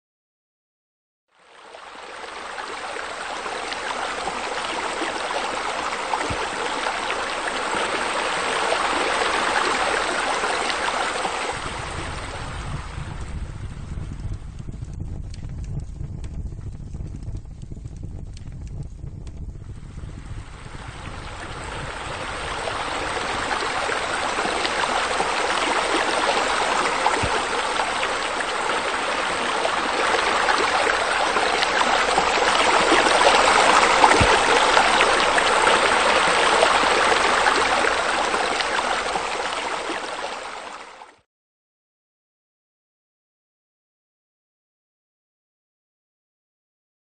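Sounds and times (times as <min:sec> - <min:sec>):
water splashing from water feature: 0:01.3 - 0:14.4, 0:19.9 - 0:41.2.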